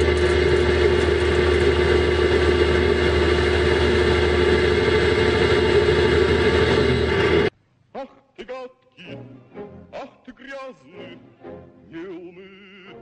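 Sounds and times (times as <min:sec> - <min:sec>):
car wash machinery hum: 0:00.0 - 0:07.5.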